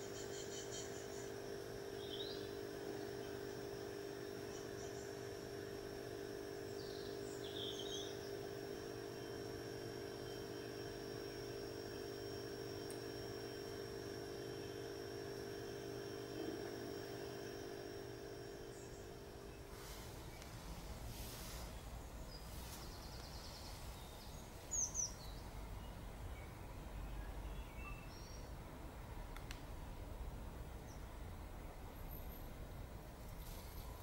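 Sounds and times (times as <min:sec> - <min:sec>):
thin high whine: 0:00.0 - 0:21.8
low mechanical hum: 0:00.0 - 0:34.0
faint bird chirps: 0:06.7 - 0:08.5, 0:21.8 - 0:28.5.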